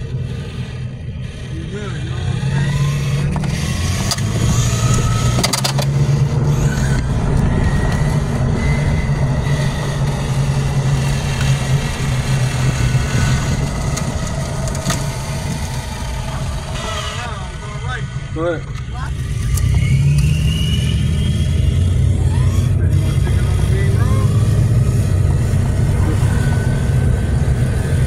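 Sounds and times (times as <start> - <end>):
car engine humming: 0.0 - 28.0
tyre noise on asphalt: 3.2 - 18.5.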